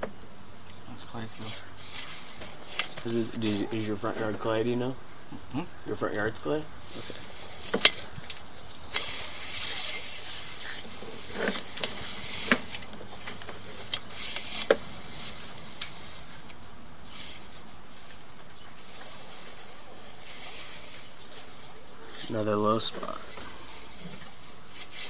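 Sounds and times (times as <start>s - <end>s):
steady hum: 0.0s - 25.0s
rustling hisses: 6.8s - 25.0s.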